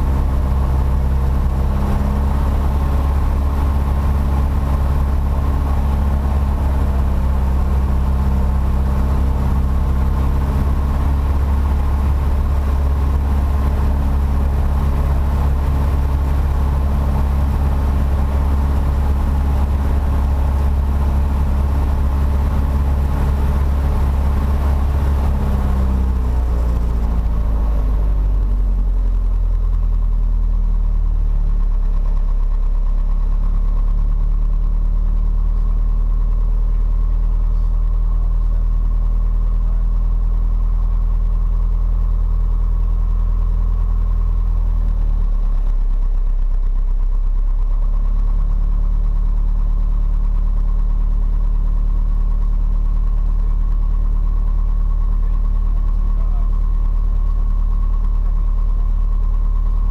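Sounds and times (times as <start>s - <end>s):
aircraft engine running: 0.0s - 59.9s.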